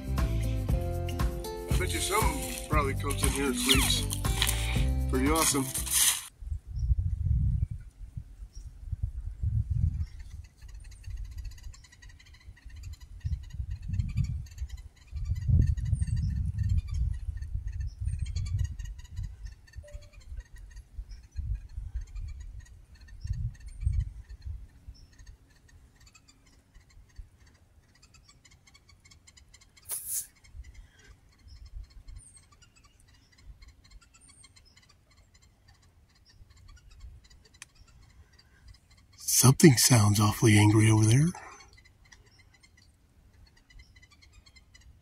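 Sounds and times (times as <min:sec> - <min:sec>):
animal chattering: 0:01.8 - 0:06.1.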